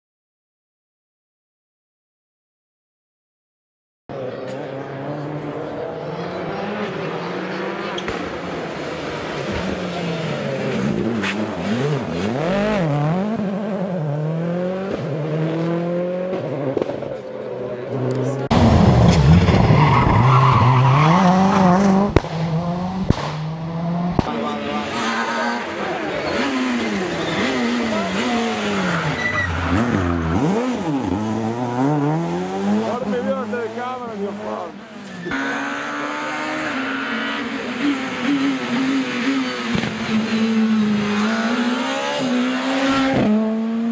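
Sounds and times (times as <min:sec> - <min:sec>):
rally car engine revving: 0:04.1 - 0:43.9
sharp crack: 0:23.1 - 0:23.4.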